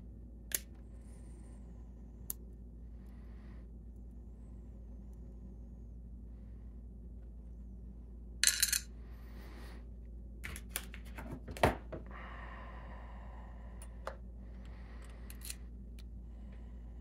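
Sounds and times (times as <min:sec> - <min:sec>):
metal lock parts clinking: 0:15.0 - 0:15.6.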